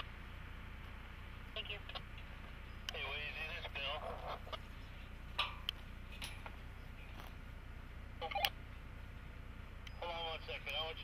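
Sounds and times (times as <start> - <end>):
steady low rumble: 0.0 - 11.0
sharp metal clicks and clinks: 5.4 - 6.6.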